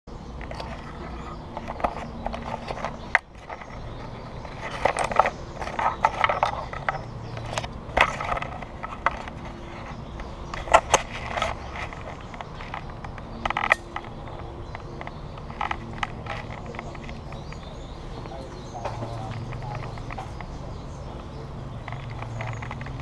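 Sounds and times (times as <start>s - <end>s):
sharp clicks: 1.4s - 20.6s
camera handling clicks and knocks: 1.5s - 17.6s.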